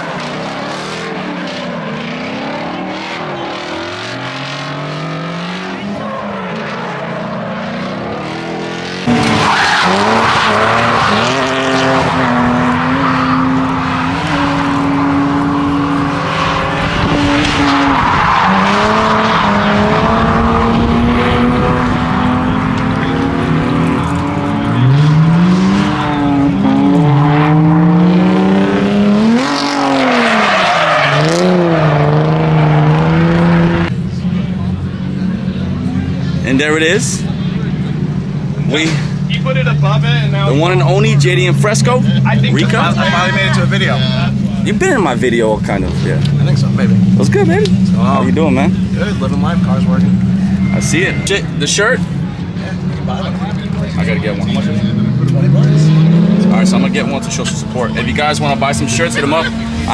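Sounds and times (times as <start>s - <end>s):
car engines revving: 0.0s - 59.9s
tyres screeching: 9.0s - 21.5s.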